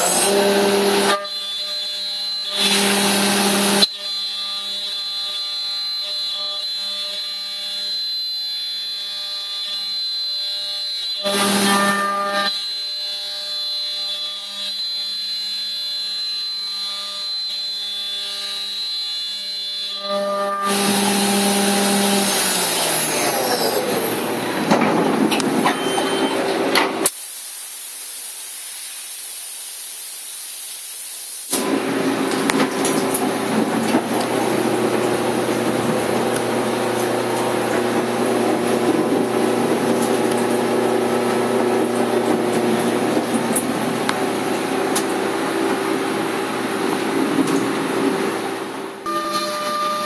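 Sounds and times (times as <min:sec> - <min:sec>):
pitched machine hum with ringing: 0:00.0 - 0:27.0, 0:31.6 - 0:50.0
milling machine cutting metal: 0:00.0 - 0:27.1, 0:31.5 - 0:50.0
steady hiss: 0:27.1 - 0:31.5.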